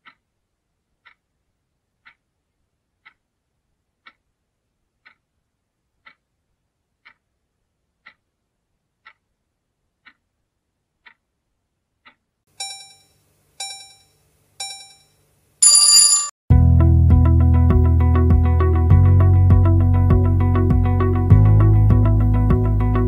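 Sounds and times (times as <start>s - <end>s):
clock ticking: 0.0s - 0.3s, 1.0s - 1.3s, 2.0s - 2.3s, 3.0s - 3.3s, 4.0s - 4.3s, 5.0s - 5.4s, 6.0s - 6.4s, 7.0s - 7.4s, 8.0s - 8.4s, 9.0s - 9.4s, 10.0s - 10.3s, 11.0s - 11.3s, 12.0s - 15.1s
ringing alarm tones: 12.6s - 16.3s.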